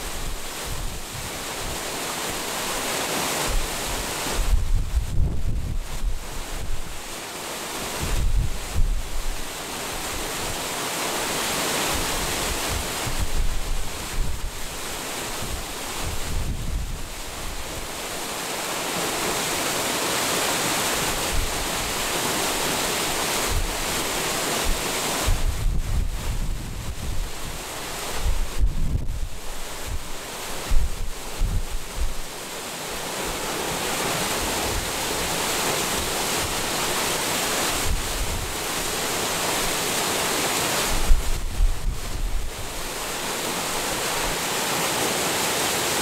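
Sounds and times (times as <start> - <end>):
water rushing over weir: 0.0 - 46.0
wind buffeting microphone: 3.5 - 7.0, 8.0 - 9.4, 15.3 - 17.9, 24.6 - 32.4, 40.9 - 42.9.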